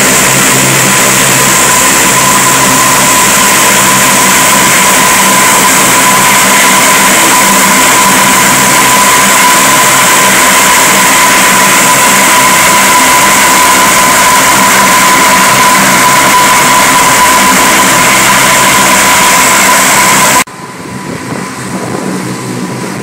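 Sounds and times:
low propeller drone: 0.0 - 23.0
turboprop engines whining: 0.0 - 23.0.

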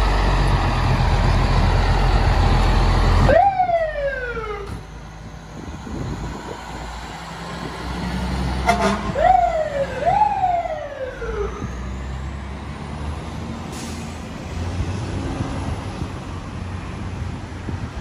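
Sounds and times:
truck engine rumble: 0.0 - 18.0
fire truck siren whoop: 1.9 - 4.9, 8.6 - 12.2.

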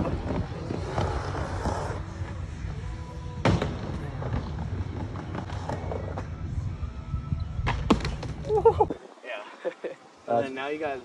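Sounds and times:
skateboard wheels rumbling: 0.0 - 2.8, 3.7 - 6.7.

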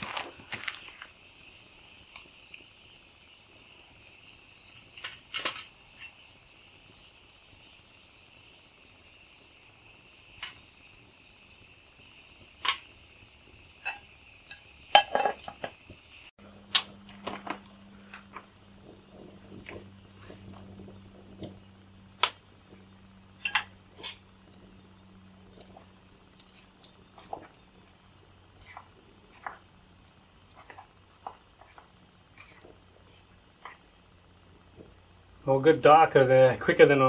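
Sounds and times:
wood fire crackling: 0.0 - 37.0
metal utensil scraping in pot: 13.8 - 15.8, 23.4 - 24.3.

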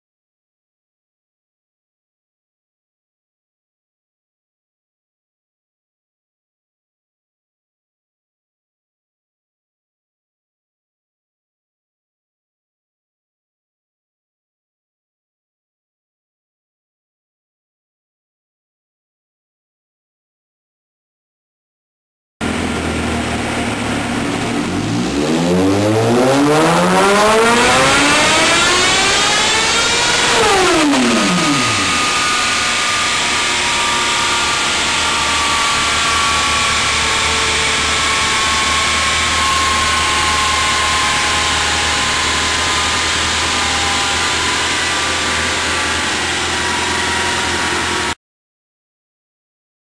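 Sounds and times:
steady loud noise: 22.4 - 39.1
motorcycle engine revving: 22.4 - 48.2
faint falling whines: 26.4 - 40.8.

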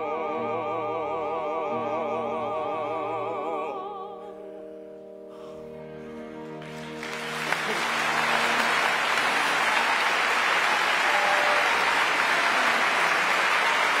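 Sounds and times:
audience applauding: 6.6 - 14.0.

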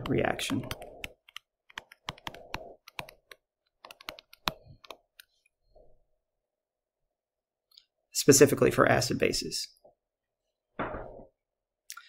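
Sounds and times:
stylus tapping on drawing tablet: 0.0 - 5.3.

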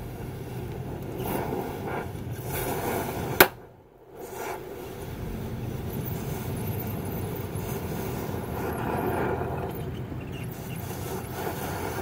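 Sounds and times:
cutting torch hissing: 0.0 - 12.0.

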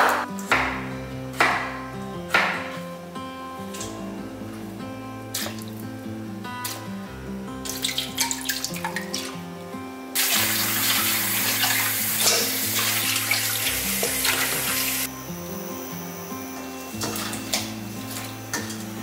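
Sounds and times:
soft background music: 0.0 - 19.0
water splashing in a bowl: 7.6 - 9.3, 10.2 - 15.1
tap water rushing into sink: 10.2 - 15.1.

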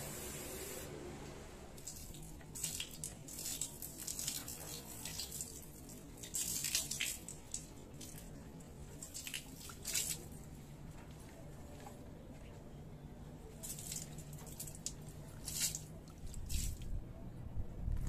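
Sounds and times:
water splashing on tarp: 1.8 - 8.3, 8.9 - 10.4, 13.6 - 16.8.

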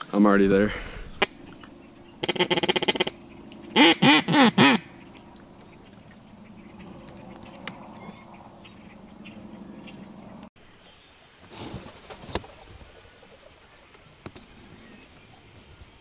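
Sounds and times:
duck quacks: 2.2 - 5.0.

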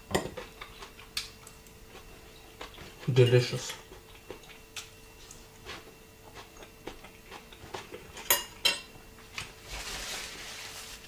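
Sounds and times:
fork clinking on ceramic plate: 8.2 - 8.9.

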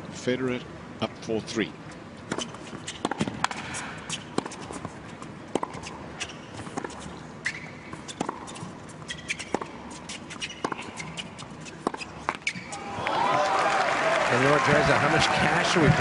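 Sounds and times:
crowd noise: 12.7 - 16.0.

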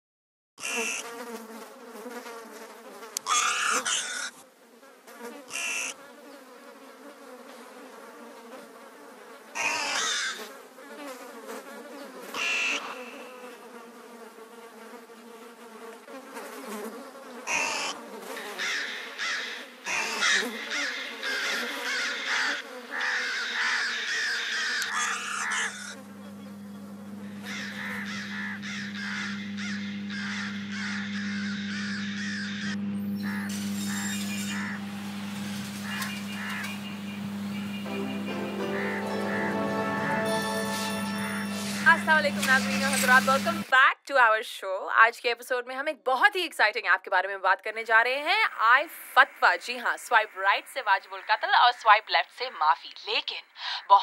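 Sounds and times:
flies buzzing: 0.6 - 43.7, 48.4 - 54.0
crows cawing: 3.2 - 4.4, 5.5 - 6.0, 9.6 - 10.5, 12.3 - 13.3, 17.5 - 26.1, 27.2 - 40.0
low steady hum: 25.9 - 43.7.

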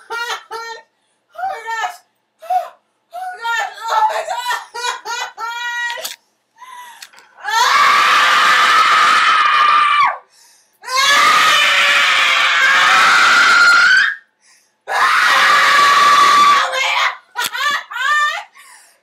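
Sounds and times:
woman screaming: 3.2 - 6.0, 7.4 - 10.2, 10.8 - 14.2, 14.9 - 18.5.

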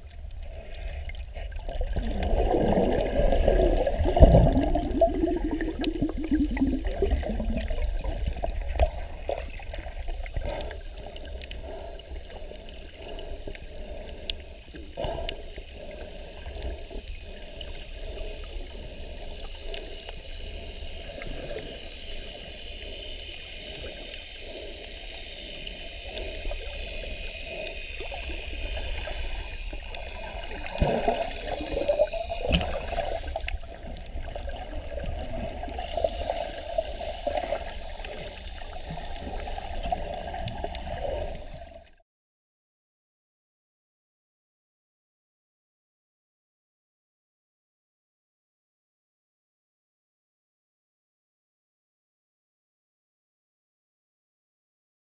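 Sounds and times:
muffled underwater rushing and bubbling: 0.0 - 42.0
faint clicks: 7.1 - 35.2.

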